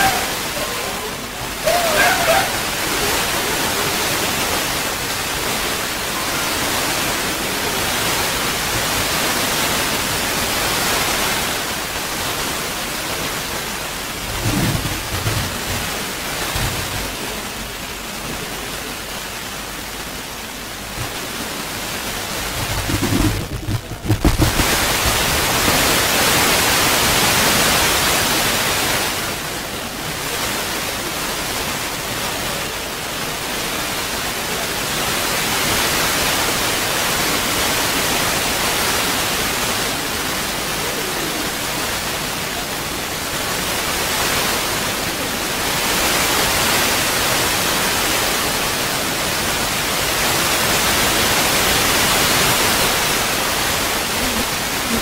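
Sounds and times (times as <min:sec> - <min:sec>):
loud rushing hiss: 0:00.0 - 0:29.4
dull low thumps: 0:14.2 - 0:16.0, 0:22.4 - 0:25.2.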